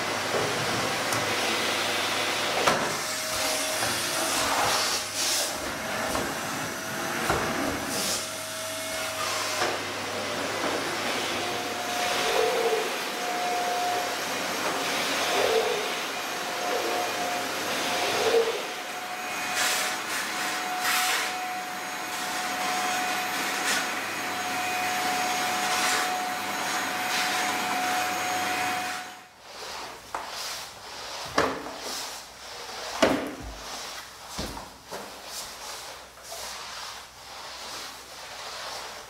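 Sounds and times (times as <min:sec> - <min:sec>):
vacuum cleaner running: 0:00.0 - 0:39.0
mop knocking and scraping floor: 0:00.2 - 0:01.4, 0:02.6 - 0:08.2, 0:08.9 - 0:12.8, 0:29.5 - 0:39.0.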